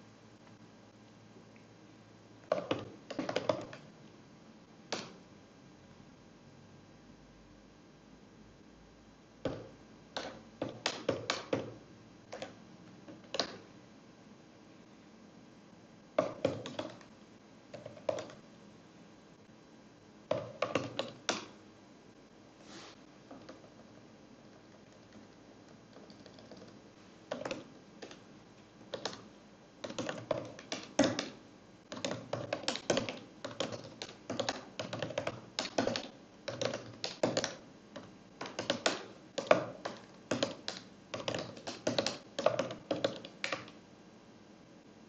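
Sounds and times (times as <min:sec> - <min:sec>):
typing on a keyboard: 0:02.5 - 0:03.9, 0:09.4 - 0:11.7, 0:12.3 - 0:13.6, 0:16.2 - 0:17.1, 0:17.7 - 0:18.4, 0:20.3 - 0:21.6, 0:23.3 - 0:28.2, 0:28.9 - 0:43.8.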